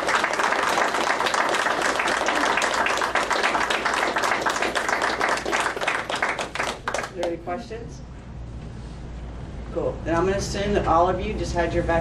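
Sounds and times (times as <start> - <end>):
group applauding: 0.0 - 7.5.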